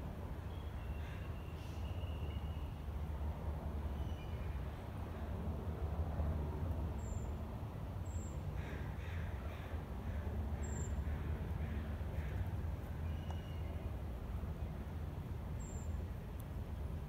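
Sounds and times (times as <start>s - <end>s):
bird harsh cawing calls: 8.5s - 13.6s.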